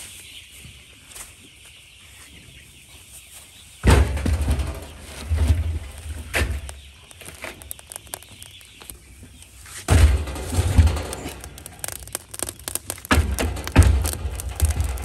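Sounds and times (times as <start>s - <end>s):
logs thudding into wood stove: 9.9s - 15.0s.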